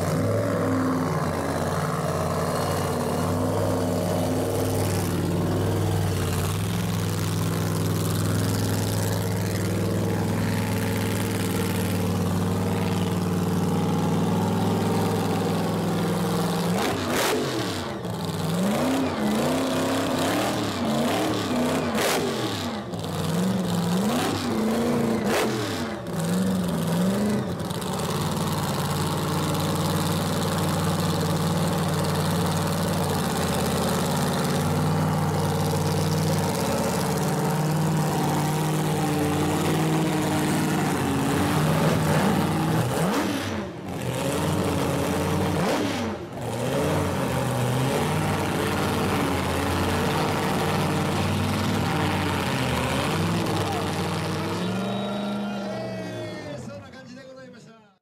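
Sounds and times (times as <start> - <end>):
exhaust cracks: 0.0 - 18.9
engine revving: 0.0 - 56.0
supercharged engine idling: 0.0 - 57.5.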